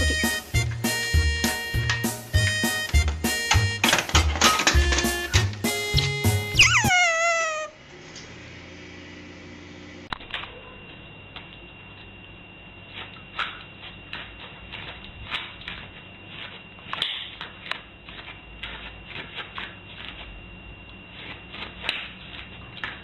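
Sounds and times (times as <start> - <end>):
dog claws scratching and clicking: 12.9 - 20.3, 21.2 - 23.0.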